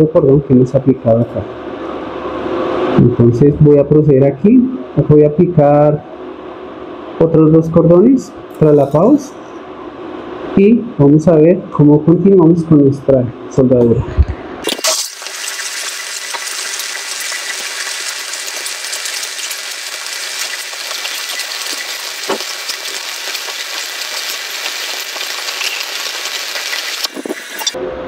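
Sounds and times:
welding arc crackling hiss: 14.6s - 27.8s.

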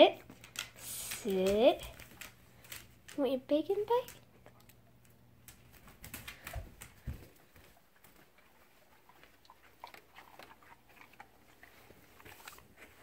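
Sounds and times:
dog chewing wet smacking: 4.2s - 13.0s.

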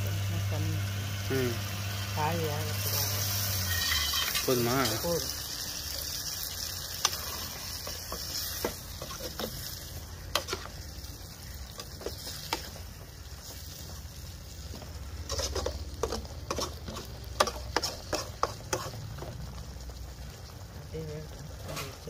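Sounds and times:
curry sizzling in a pan: 0.0s - 22.0s
ladle scraping a metal pan: 3.3s - 4.6s, 15.2s - 19.0s.

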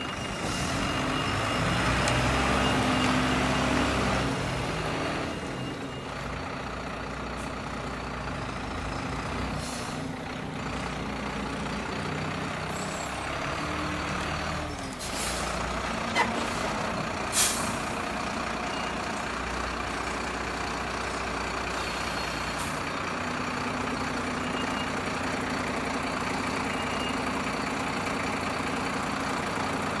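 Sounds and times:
diesel truck engine droning: 0.0s - 30.0s
air brake hisses: 9.6s - 10.1s, 15.0s - 15.6s, 17.2s - 17.8s, 21.7s - 22.8s.

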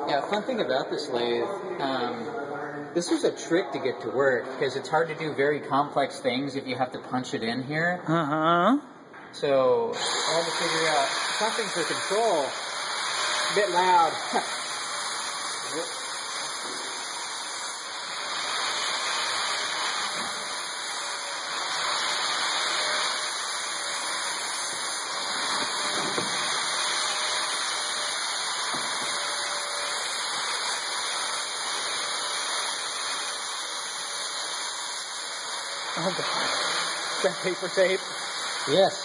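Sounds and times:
machine shop rushing noise: 10.0s - 39.0s.

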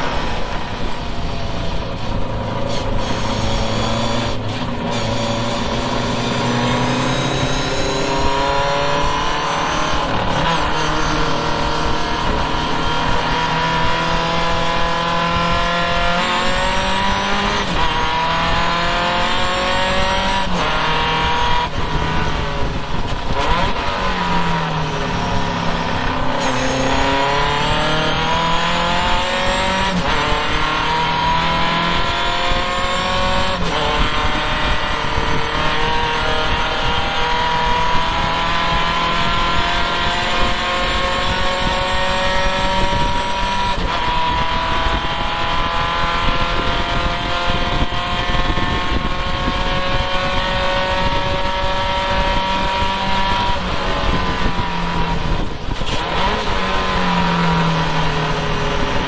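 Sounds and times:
race car engine revving: 0.0s - 59.0s
wind rushing: 0.0s - 59.0s.

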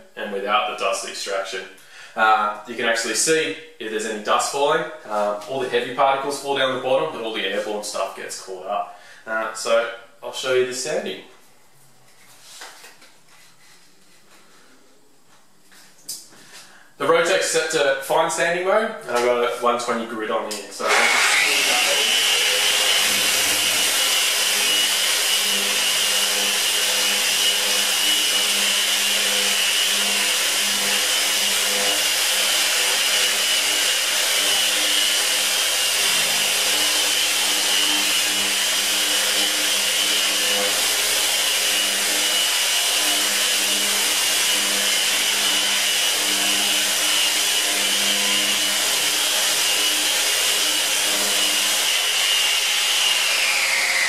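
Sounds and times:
dust extractor running: 20.5s - 54.0s
sander whining on plaster: 20.8s - 54.0s.

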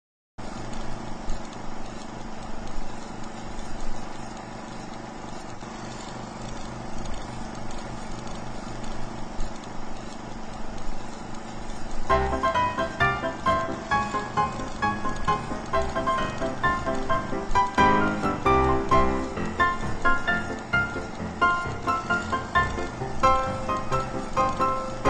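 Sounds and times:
film projector clattering: 0.4s - 25.0s
music with plucked notes: 12.1s - 25.0s.

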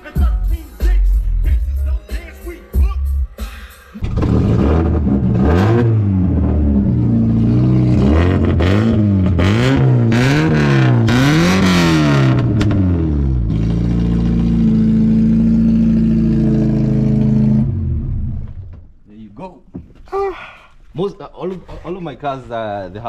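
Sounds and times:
car engine revving loud exhaust: 4.0s - 18.5s.

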